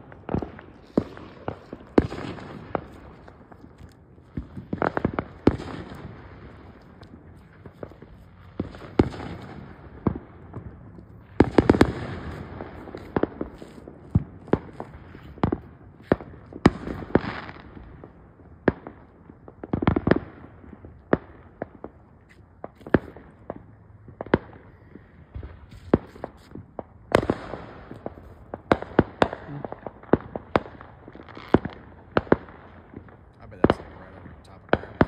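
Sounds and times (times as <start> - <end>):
fireworks bangs and pops: 0.0 - 35.0
fireworks crackling: 0.0 - 35.0.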